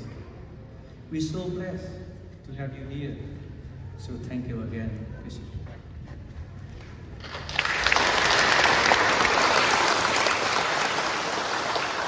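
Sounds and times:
crowd applauding: 0:07.2 - 0:12.0.

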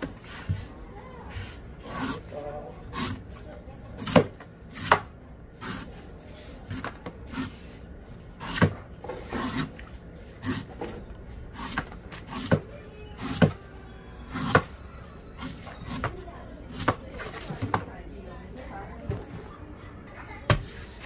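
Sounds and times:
knife chopping coconut husk: 0:04.0 - 0:05.9, 0:08.4 - 0:09.8, 0:10.4 - 0:10.8.

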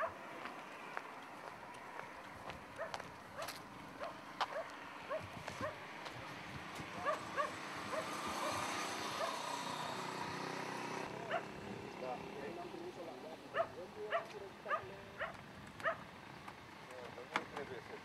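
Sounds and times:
dog barking: 0:00.0 - 0:00.2, 0:02.8 - 0:05.8, 0:07.0 - 0:08.6, 0:09.2 - 0:09.5, 0:11.2 - 0:11.6, 0:13.5 - 0:16.0.

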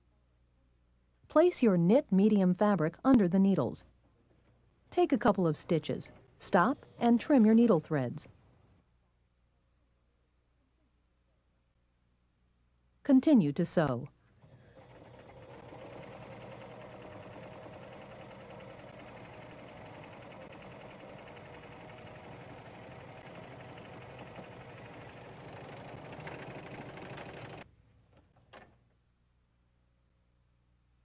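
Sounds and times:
serger sewing machine running: 0:14.4 - 0:27.7.

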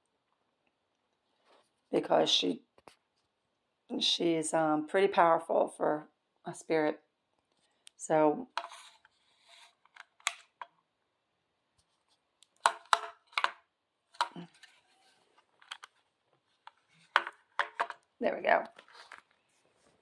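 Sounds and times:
plastic device clicking and tapping: 0:12.4 - 0:13.6, 0:16.6 - 0:18.0.

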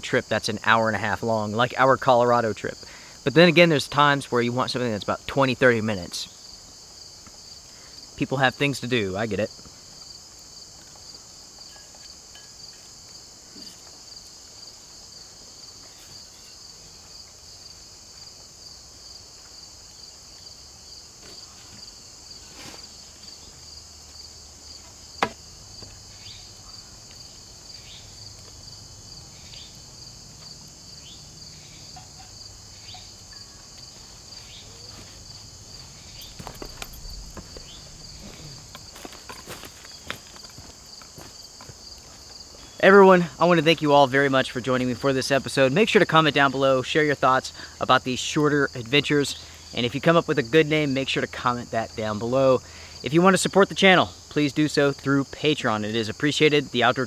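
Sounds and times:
insects trilling: 0:00.0 - 0:57.0
footsteps: 0:21.2 - 0:26.1, 0:33.4 - 0:42.8
sharp knock: 0:25.2 - 0:25.4.

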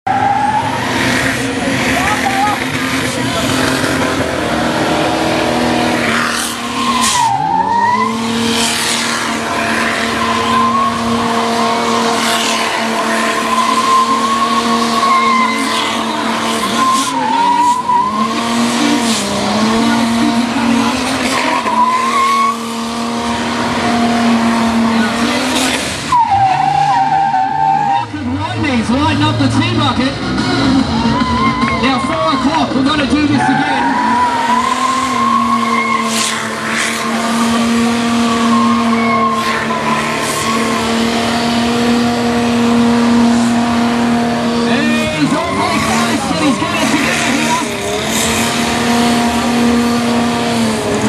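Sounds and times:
engine revving at high revs: 0:00.0 - 0:51.0
tyres spinning and screeching: 0:00.1 - 0:51.0.

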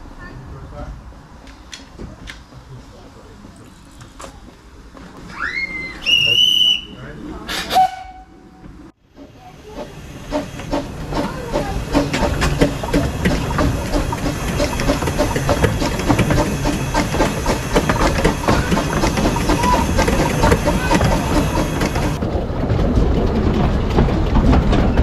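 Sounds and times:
wheels clattering on track: 0:00.0 - 0:25.0
steam hissing: 0:09.2 - 0:22.2.

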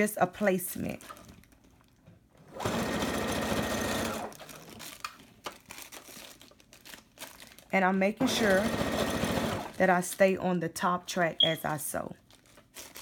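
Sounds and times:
sewing machine stitching: 0:02.5 - 0:04.4, 0:08.2 - 0:09.8.

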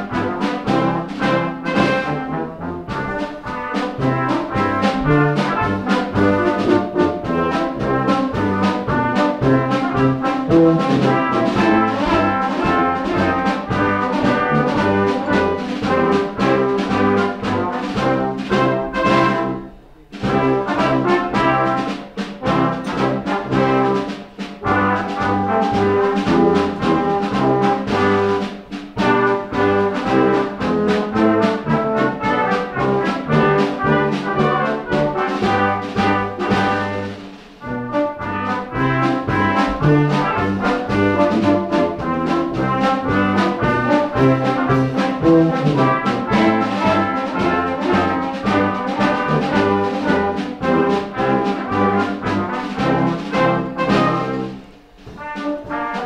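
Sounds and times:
brass band playing: 0:00.0 - 0:56.0.

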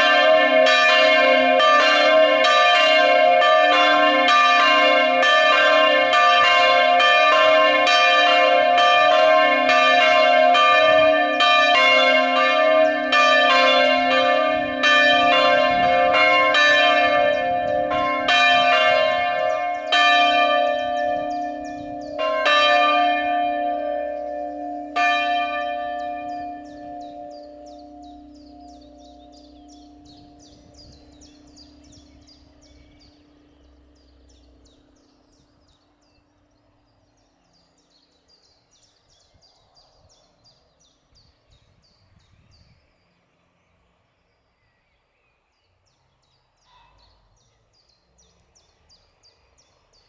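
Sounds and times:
chapel bells ringing: 0:00.0 - 0:35.8.

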